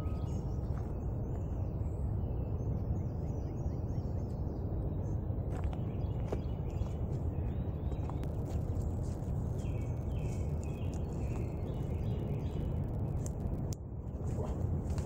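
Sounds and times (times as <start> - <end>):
bird chirping: 0.0 - 13.5
wind rumble on microphone: 0.0 - 15.0
footsteps rustling through undergrowth: 7.9 - 12.0.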